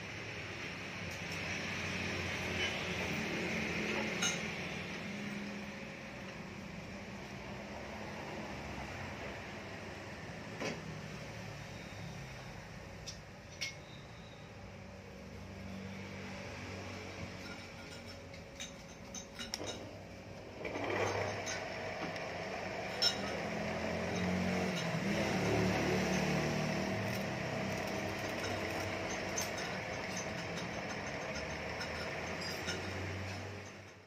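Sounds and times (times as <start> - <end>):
light metal clinks: 17.2 - 20.0, 24.1 - 34.0
bench lathe humming and whining: 20.4 - 33.6.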